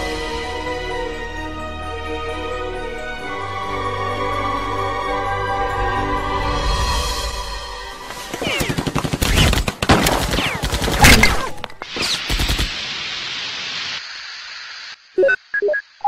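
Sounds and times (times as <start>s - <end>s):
music: 0.0s - 9.6s
rapid sharp cracks and knocks: 8.4s - 11.2s
steady hiss: 11.9s - 15.2s.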